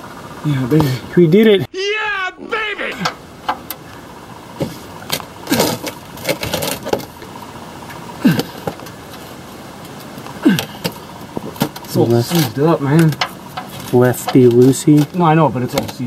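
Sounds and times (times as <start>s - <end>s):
person grunting: 8.2s - 8.6s, 10.4s - 10.8s.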